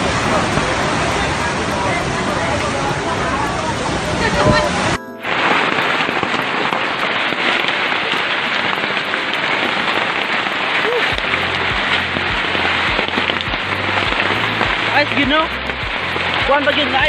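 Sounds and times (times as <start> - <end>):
hailstones pelting down: 0.0 - 17.0
low thumps: 11.1 - 17.0.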